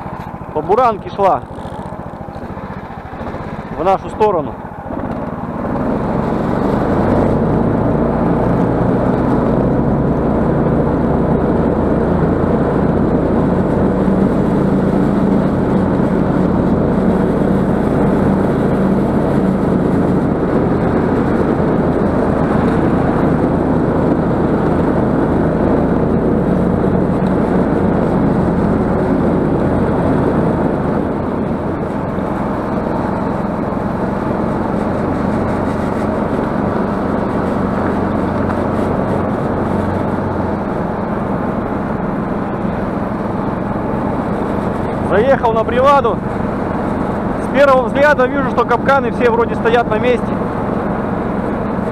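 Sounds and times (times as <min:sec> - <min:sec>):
snowmobile engine running: 0:00.0 - 0:51.9.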